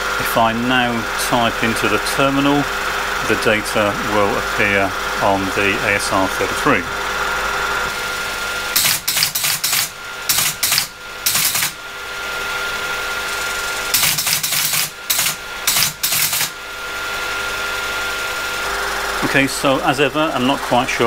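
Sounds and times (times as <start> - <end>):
motor hum: 0.0 - 21.0
teletype mechanical clacking: 8.7 - 11.8, 13.9 - 16.6.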